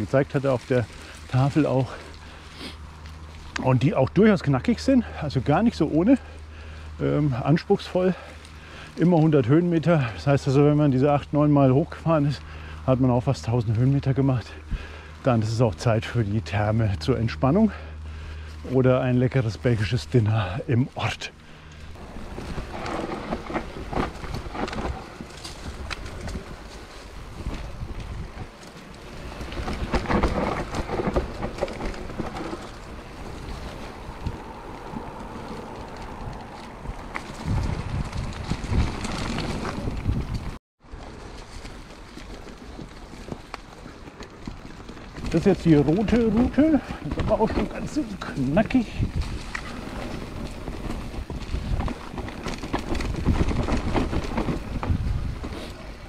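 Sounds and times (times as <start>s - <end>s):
tyres rumbling on dirt: 0.0s - 56.0s
wind buffeting microphone: 21.6s - 40.6s, 42.4s - 56.0s
bike rattling and knocking: 21.8s - 56.0s.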